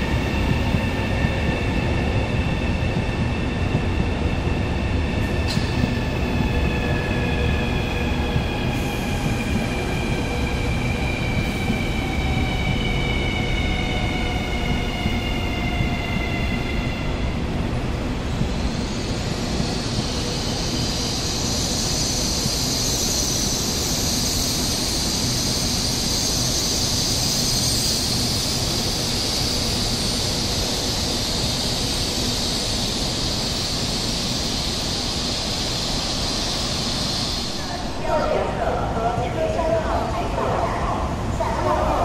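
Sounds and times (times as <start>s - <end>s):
train rolling past: 0.0s - 42.0s
high hissing squeal: 18.7s - 38.2s.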